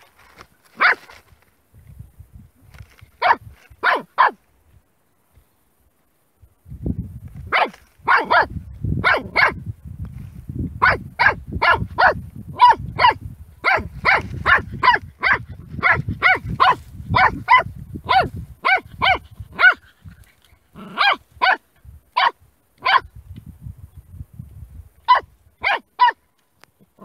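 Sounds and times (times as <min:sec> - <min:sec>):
puppy barking: 0:00.8 - 0:01.1, 0:03.2 - 0:04.4, 0:07.5 - 0:09.6, 0:10.8 - 0:19.8, 0:20.8 - 0:21.6, 0:22.2 - 0:23.1, 0:25.1 - 0:26.2.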